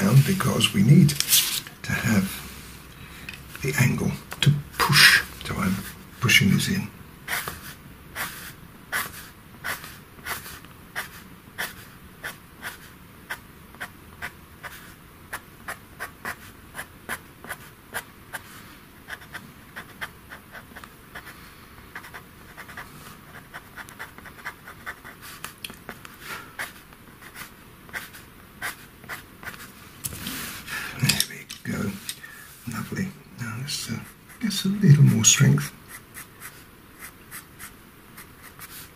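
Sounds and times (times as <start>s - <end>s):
paper and board rustling: 0.0s - 1.8s
pastel pencil scratching on paper: 7.3s - 18.5s, 19.1s - 26.0s, 26.6s - 29.7s, 35.9s - 38.9s.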